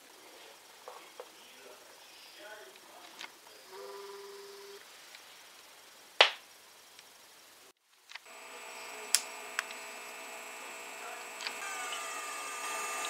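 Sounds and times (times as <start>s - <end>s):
buzzy steady tones: 3.5s - 4.8s, 8.3s - 13.0s
sharp clicks: 9.0s - 10.0s, 11.0s - 12.1s.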